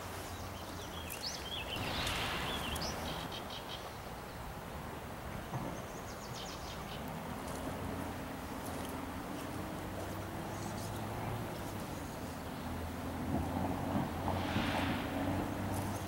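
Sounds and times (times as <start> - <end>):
small birds chirping: 0.0 - 4.6, 8.5 - 13.0
rush of moving water: 0.0 - 16.0.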